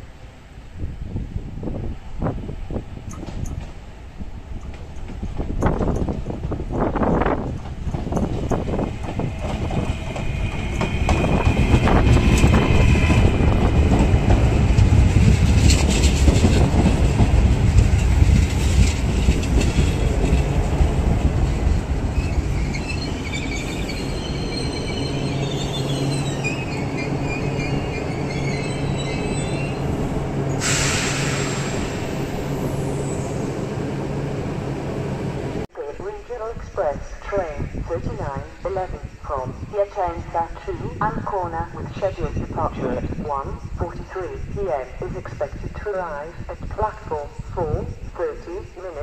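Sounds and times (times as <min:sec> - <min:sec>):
train wheels rumbling and clicking: 0:02.7 - 0:32.7
wheel squeal: 0:22.1 - 0:31.4.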